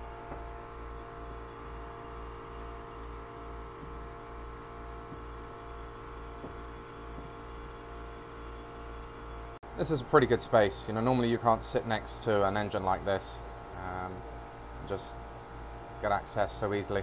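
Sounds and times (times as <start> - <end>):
machinery hum with pulsing throb: 0.0 - 17.0
faint handling knocks: 6.4 - 7.4.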